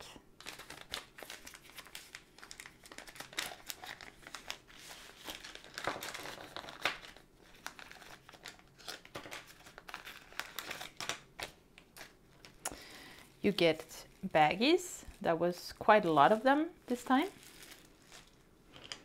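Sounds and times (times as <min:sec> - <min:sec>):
plastic bag crinkling: 0:00.4 - 0:19.0.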